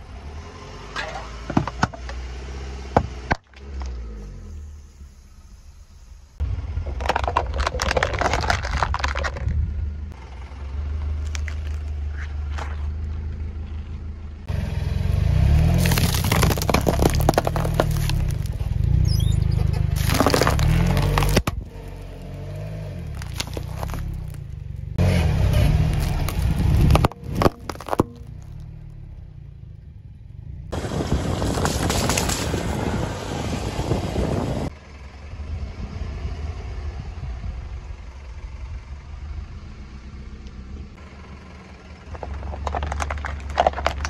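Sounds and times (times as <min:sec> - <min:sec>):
steady low rumble: 0:04.5 - 0:14.5, 0:22.9 - 0:44.0
candy and plastic crunching: 0:06.8 - 0:09.6, 0:15.6 - 0:18.8, 0:20.0 - 0:22.3, 0:23.1 - 0:24.5, 0:25.9 - 0:28.6, 0:42.1 - 0:44.0.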